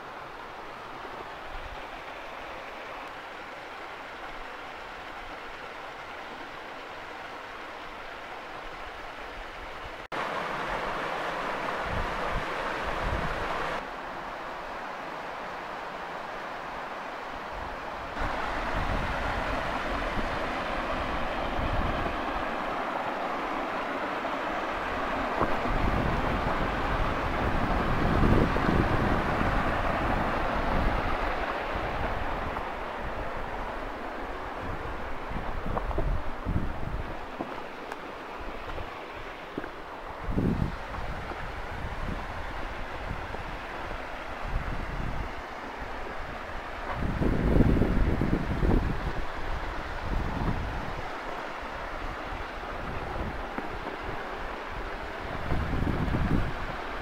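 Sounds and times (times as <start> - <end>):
flowing water: 0.0 - 57.0
stream rushing: 0.0 - 57.0
wind buffeting microphone: 17.6 - 57.0.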